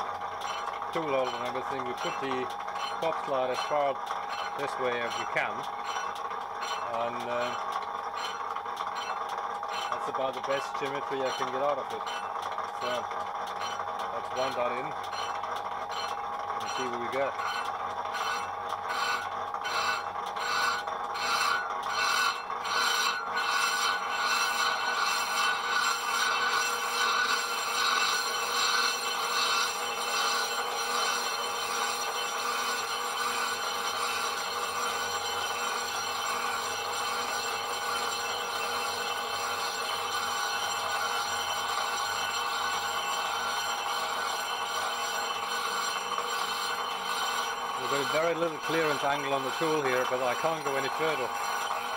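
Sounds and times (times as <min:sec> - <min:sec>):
lathe running: 0:00.0 - 0:51.9
lathe tool cutting metal: 0:00.0 - 0:51.9.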